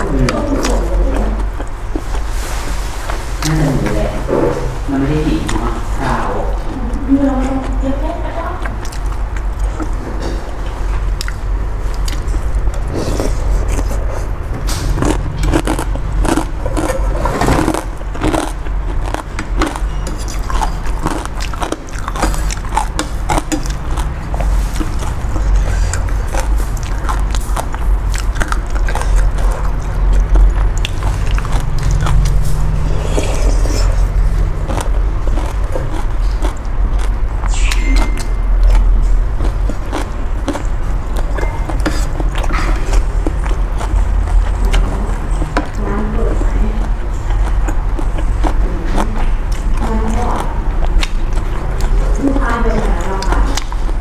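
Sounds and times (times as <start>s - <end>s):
low hum: 0.0s - 54.0s
chewing and slurping noodles: 8.6s - 54.0s.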